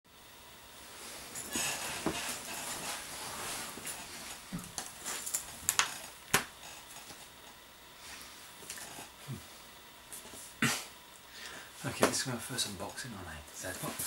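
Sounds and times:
rustling of clothes and bedding: 0.7s - 7.4s.

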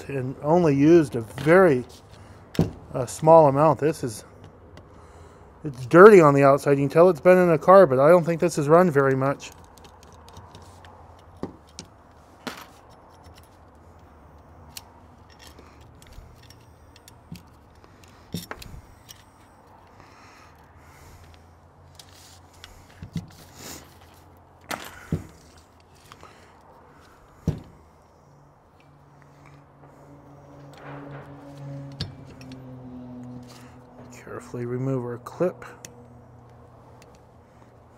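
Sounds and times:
metal parts clicking and clinking: 8.8s - 27.9s.

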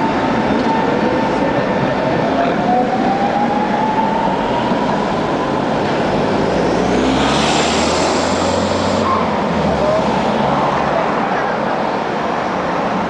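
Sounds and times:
city traffic noise: 0.0s - 13.0s
car passing close: 5.5s - 11.2s.

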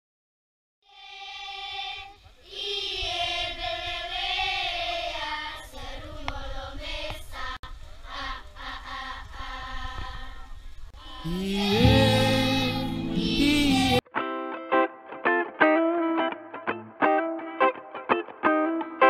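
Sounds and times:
children singing together: 0.9s - 14.0s.

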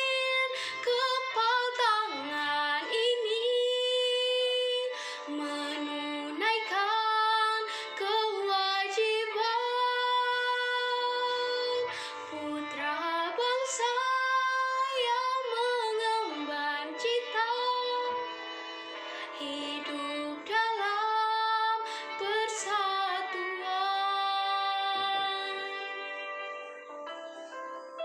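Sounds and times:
girl singing: 0.0s - 18.4s, 19.2s - 26.0s
instrumental backing music: 0.0s - 28.0s.

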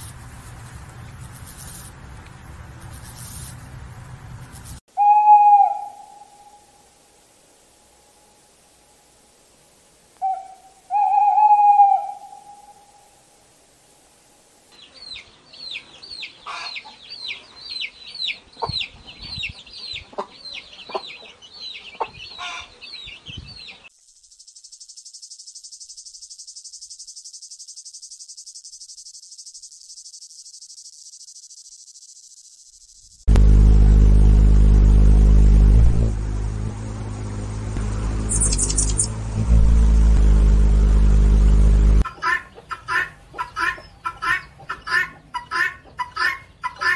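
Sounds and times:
chicks peeping: 14.8s - 23.9s, 42.1s - 46.9s
hummingbird wings humming: 24.0s - 42.0s
cicada buzzing: 24.0s - 42.1s.

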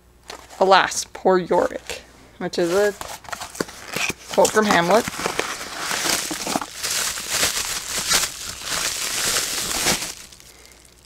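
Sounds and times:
packaging crinkling and rustling: 2.6s - 11.0s.

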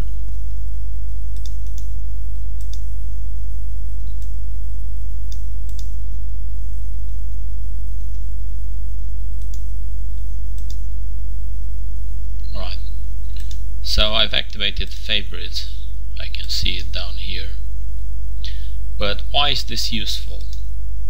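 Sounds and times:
low electrical hum: 0.0s - 21.0s
computer mouse clicks: 1.4s - 1.9s, 2.6s - 2.9s, 5.3s - 5.9s, 9.4s - 9.7s, 10.6s - 10.8s, 13.3s - 13.6s.

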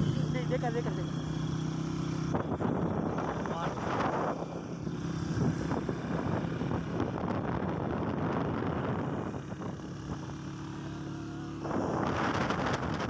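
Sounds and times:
motorcycle engine running: 0.0s - 13.0s
road noise: 0.0s - 13.0s
wind noise: 2.2s - 10.5s, 11.6s - 13.0s.

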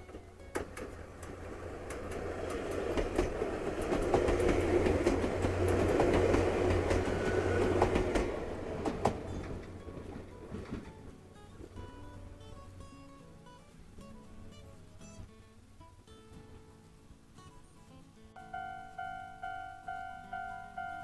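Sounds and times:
train wheels clicking on rails: 0.0s - 11.8s
electric train passing: 0.0s - 12.8s, 18.4s - 21.0s.

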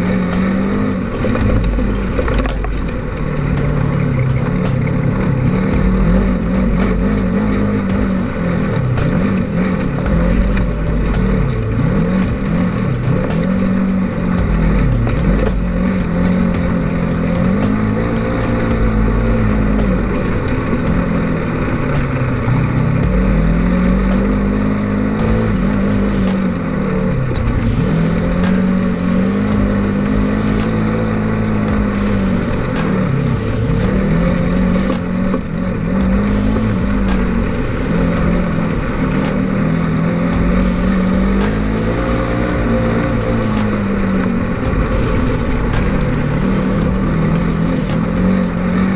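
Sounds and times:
vehicle engine revving: 0.0s - 48.9s.

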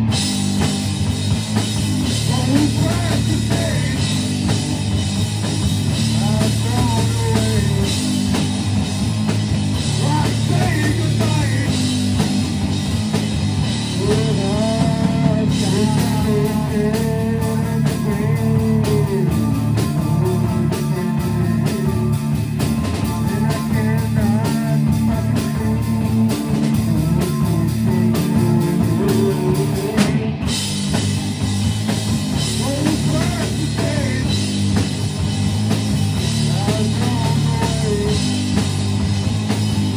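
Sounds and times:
bass guitar: 0.0s - 39.9s
drum kit: 0.0s - 39.9s
electric guitars distorted: 0.0s - 39.9s
person singing: 2.2s - 4.2s, 6.1s - 8.0s, 9.9s - 11.9s, 14.0s - 22.4s, 23.0s - 30.4s, 32.6s - 34.4s, 36.4s - 38.4s.

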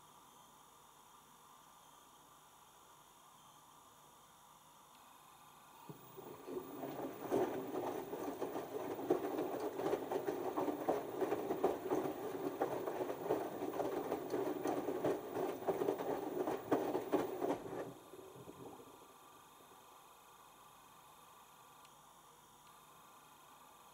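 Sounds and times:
wet laundry tumbling and splashing: 5.9s - 19.0s
washing machine motor running: 5.9s - 19.4s.

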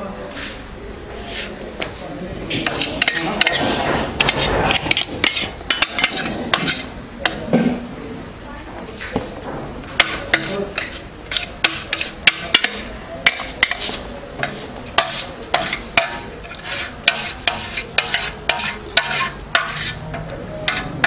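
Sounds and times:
metal spatula scraping steel pan: 2.5s - 7.4s, 10.0s - 21.0s.

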